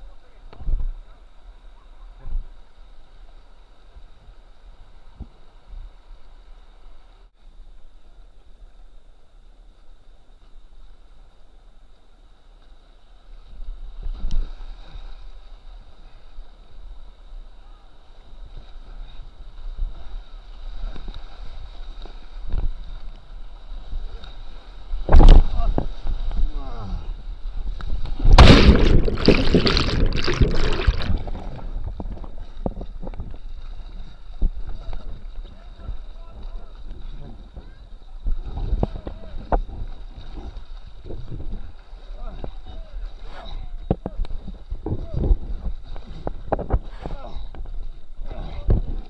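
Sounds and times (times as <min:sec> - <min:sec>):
wind buffeting microphone: 0:27.4 - 0:42.9, 0:43.8 - 0:49.0
scattered underwater knocks: 0:28.2 - 0:33.4
rushing whitewater: 0:28.3 - 0:31.8.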